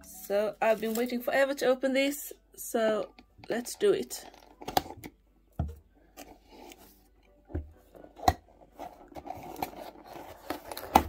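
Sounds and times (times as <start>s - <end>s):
cardboard scraping and rustling: 7.9s - 11.0s.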